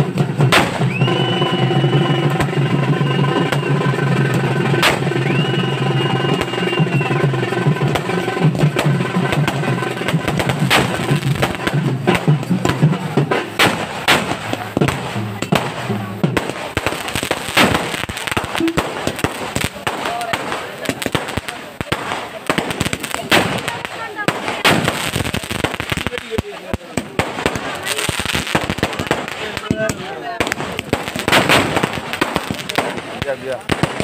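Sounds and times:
festival music with sliding high notes: 0.0 - 19.7
fireworks cracking and crackling: 0.0 - 34.0.

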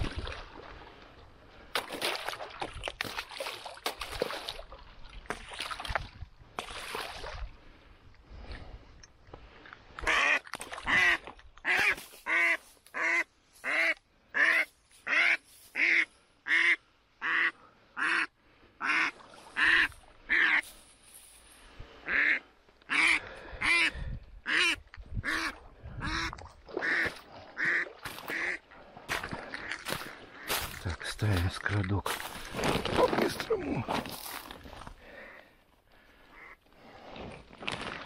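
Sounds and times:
duck quacking loudly: 10.0 - 20.6.

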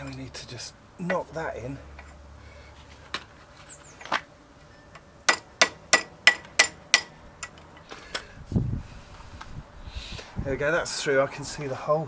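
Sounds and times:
hammer tapping metal pin: 5.0 - 7.6.

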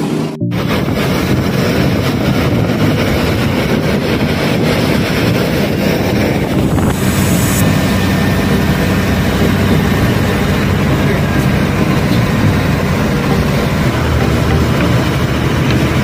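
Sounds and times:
bus engine and road noise: 0.0 - 16.0
brief high hiss: 6.5 - 8.2.

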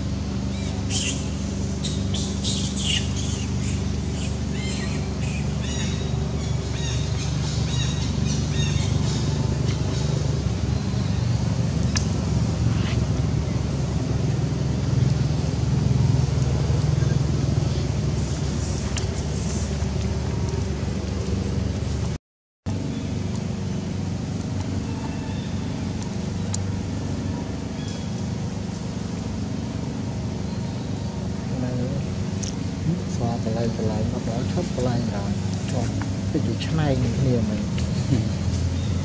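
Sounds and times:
low engine drone: 0.0 - 39.0
animal squeaks and chirps: 0.5 - 9.4.

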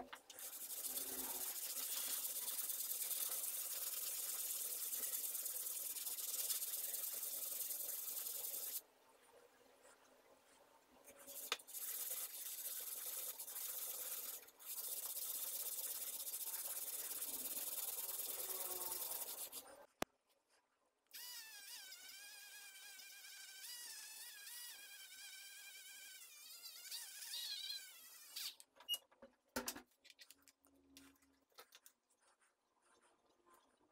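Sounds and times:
chisel rubbing on sandpaper: 11.3 - 19.7.

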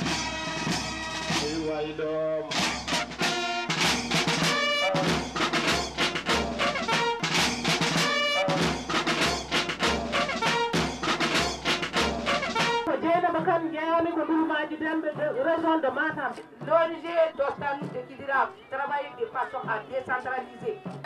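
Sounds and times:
brass horns: 0.0 - 1.8, 2.4 - 12.9
field drums march beat: 0.0 - 18.4.

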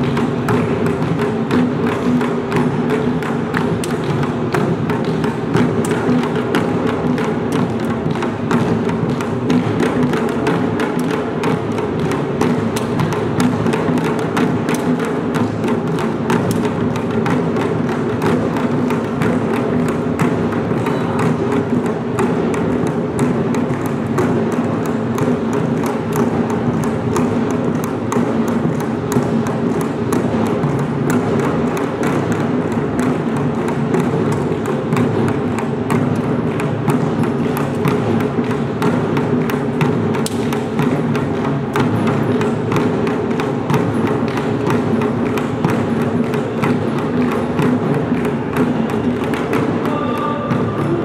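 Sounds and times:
folk percussion band playing: 0.0 - 51.0.

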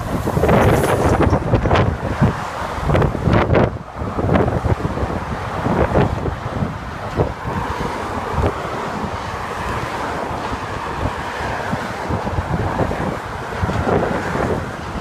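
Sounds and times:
car traffic passing: 0.0 - 15.0
wind gusts on microphone: 0.0 - 15.0.

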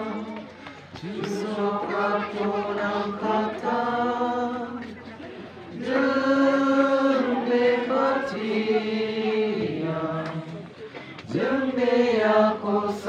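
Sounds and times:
congregation singing a hymn: 0.0 - 5.0, 5.7 - 13.0.

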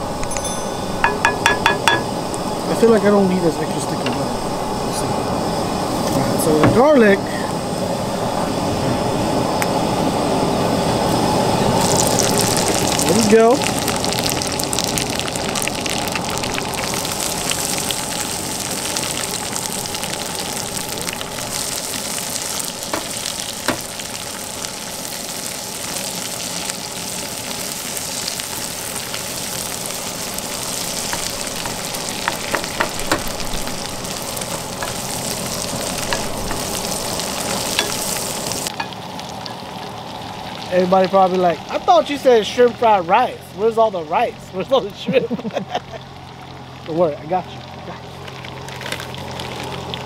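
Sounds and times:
vegetables sizzling in a frying pan: 11.1 - 42.8, 45.6 - 50.0.

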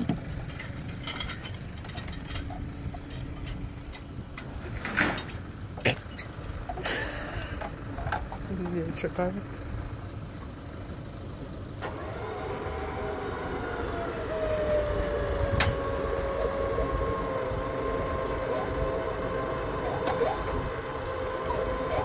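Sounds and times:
powered hoist whining: 11.7 - 22.0.

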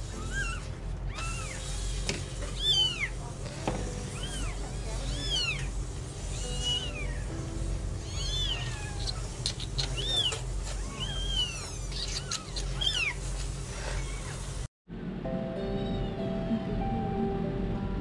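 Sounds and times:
newborn kittens mewing: 0.0 - 1.9, 2.5 - 3.2, 3.8 - 7.3, 8.0 - 13.2.

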